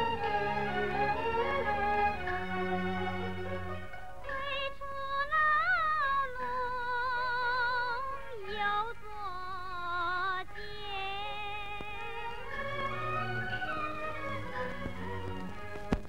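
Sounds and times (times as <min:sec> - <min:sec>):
high melody with vibrato: 0:00.0 - 0:04.6
soft orchestral accompaniment: 0:00.0 - 0:16.0.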